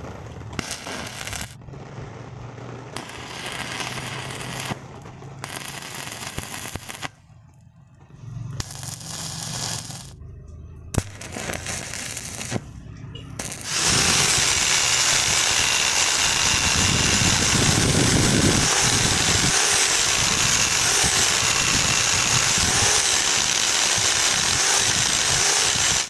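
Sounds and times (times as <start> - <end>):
angle grinder grinding steel: 8.6 - 10.2, 11.0 - 12.6, 13.4 - 26.0.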